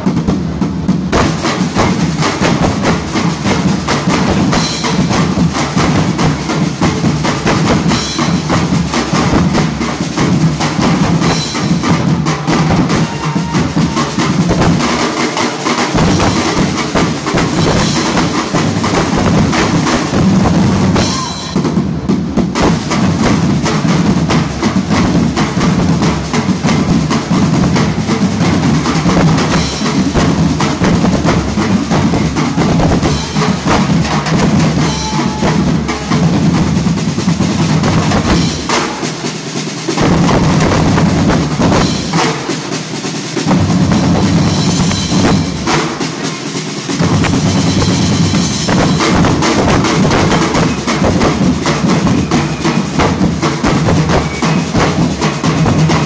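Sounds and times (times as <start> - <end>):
drums playing fast rhythm: 0.0 - 56.0
cymbal crashes: 15.7 - 22.0, 32.0 - 36.8.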